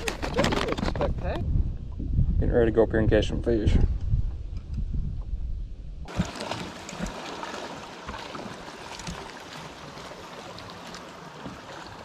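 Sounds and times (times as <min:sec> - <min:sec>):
water lapping against boat hull: 0:06.1 - 0:12.0.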